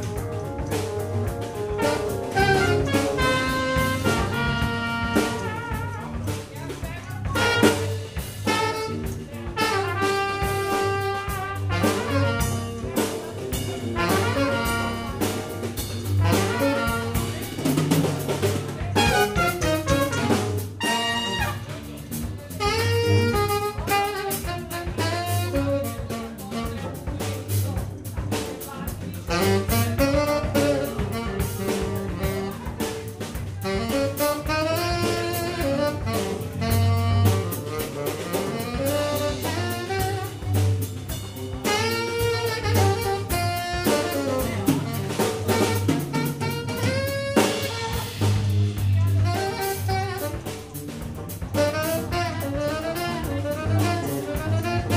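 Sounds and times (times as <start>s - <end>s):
tenor saxophone: 0.0s - 27.4s, 29.2s - 54.9s
trumpet: 0.0s - 28.2s, 29.2s - 54.9s
drum kit: 0.0s - 54.9s
electric bass: 0.0s - 54.9s.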